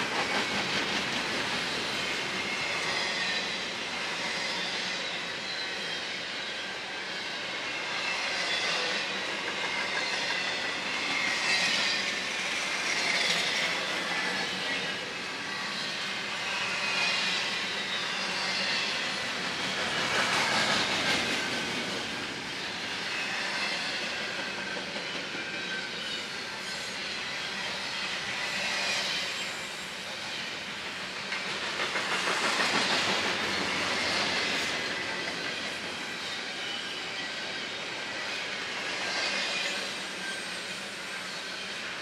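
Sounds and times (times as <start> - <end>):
train cars rolling on rails: 0.0 - 42.0.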